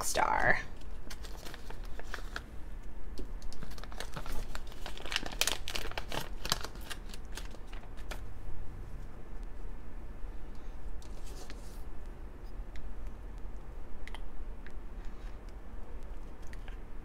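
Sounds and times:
plastic bag crinkling: 0.8s - 2.5s, 3.4s - 8.3s.

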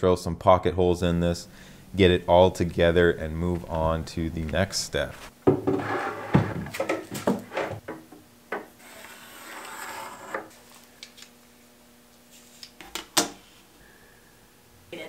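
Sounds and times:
scraping rub on wood: 8.8s - 10.6s.

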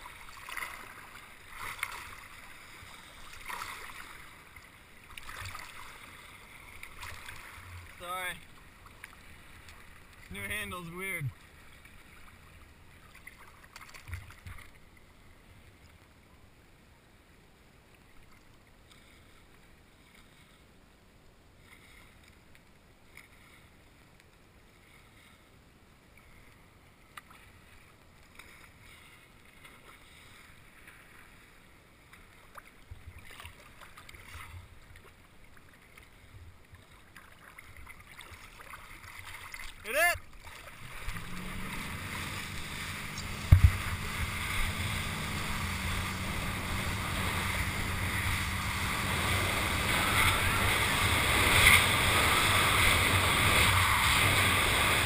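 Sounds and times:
small splashes: 0.0s - 10.4s, 11.3s - 14.8s, 32.1s - 55.0s
water lapping and sloshing: 0.0s - 16.8s, 17.7s - 55.0s
low thuds: 40.9s - 51.7s.

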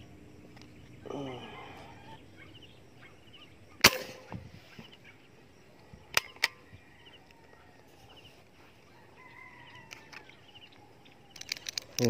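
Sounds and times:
distant rooster crowing: 1.1s - 2.7s, 6.0s - 11.3s
air rifle shot: 3.8s - 4.5s.

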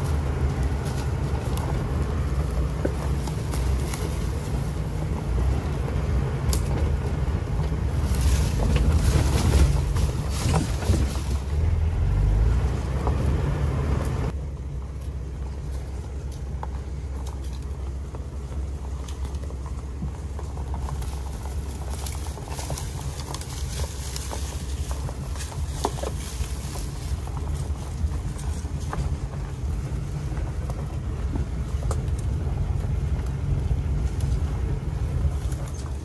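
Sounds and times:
knocks and rattles: 0.0s - 11.8s
wind noise: 0.0s - 14.4s
vehicle engine and road rumble: 0.0s - 36.0s.

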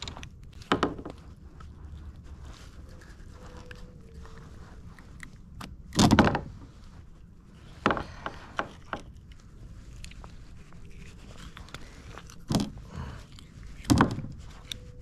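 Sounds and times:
rustling thump: 13.7s - 14.7s.

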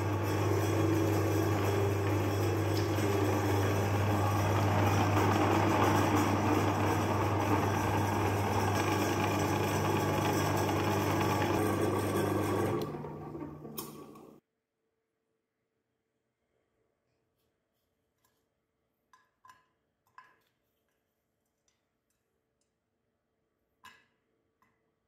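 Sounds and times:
meat grinder motor humming: 0.0s - 14.4s.

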